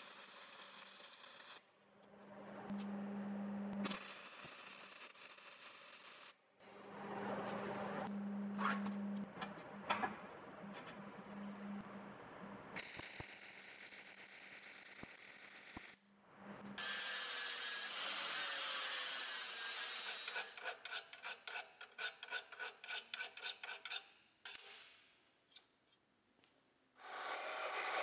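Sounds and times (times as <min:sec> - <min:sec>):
welding arc crackling and hissing: 0:12.8 - 0:16.0.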